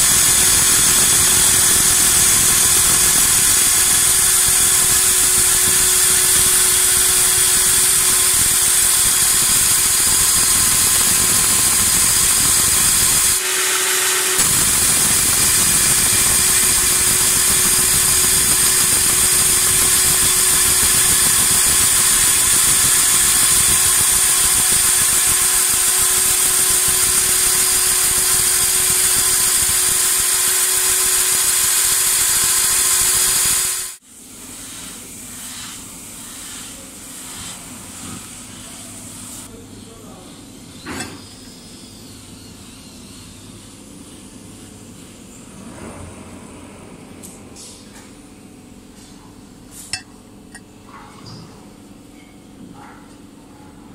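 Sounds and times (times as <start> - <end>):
belt grinder grinding steel pipe: 0.0 - 34.0.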